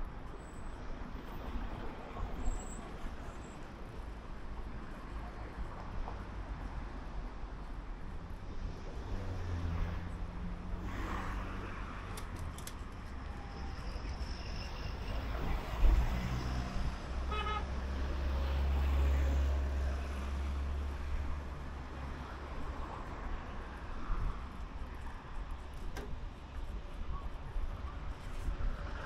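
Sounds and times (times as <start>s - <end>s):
vehicle engines rumbling past: 8.7s - 23.8s
vehicle horn toot: 17.3s - 17.7s.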